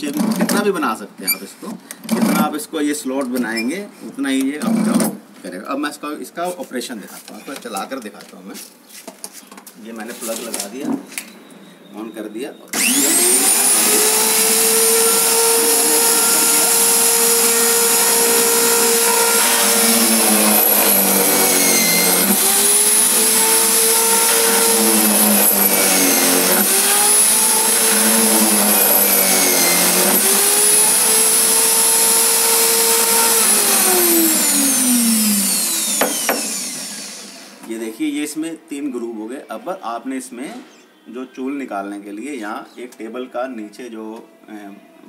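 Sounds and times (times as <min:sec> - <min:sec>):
electric drill whining: 0:12.7 - 0:37.6.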